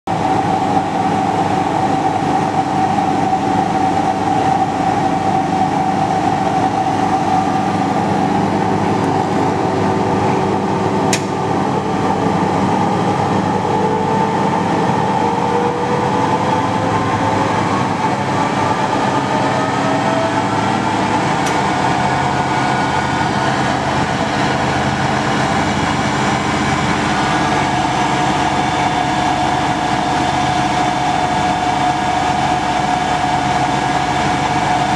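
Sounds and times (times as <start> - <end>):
lathe mechanical whine: 0.1 - 34.9.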